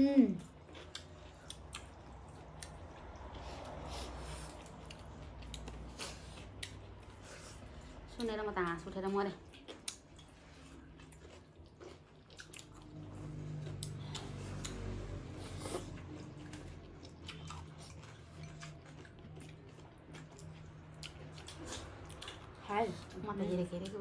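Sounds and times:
people chewing and smacking: 0:00.1 - 0:24.0
low hum: 0:12.7 - 0:24.0.

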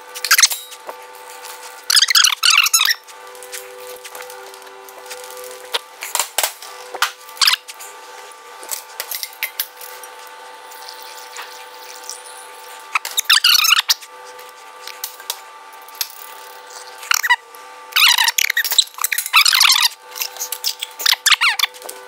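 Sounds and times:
steady hum: 0:00.0 - 0:22.0
shrill squeaking: 0:01.9 - 0:05.8.

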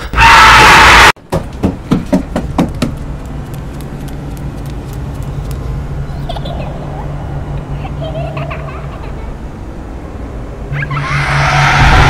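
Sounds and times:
footsteps on wooden stairs: 0:01.3 - 0:05.3.

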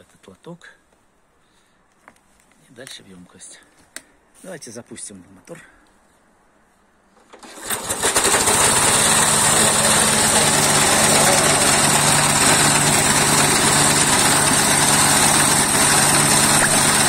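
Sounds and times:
small petrol engine running: 0:07.4 - 0:17.0.

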